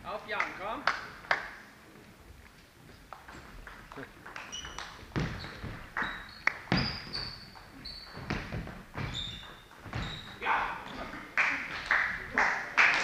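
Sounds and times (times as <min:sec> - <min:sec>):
sports shoes squeaking: 0:02.9 - 0:11.3.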